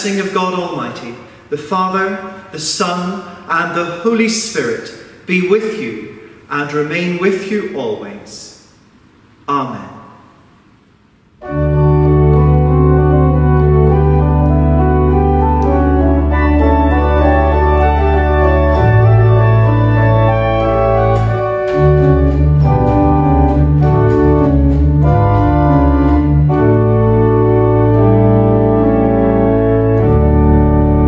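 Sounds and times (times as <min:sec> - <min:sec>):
church organ chords: 0:11.4 - 0:31.0.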